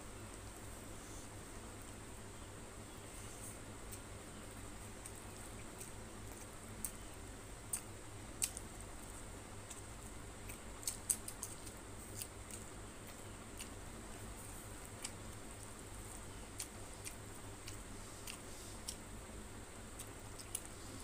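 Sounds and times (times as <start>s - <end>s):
steady faint hiss: 0.0s - 21.0s
mouth chewing: 7.7s - 19.1s, 19.9s - 21.0s.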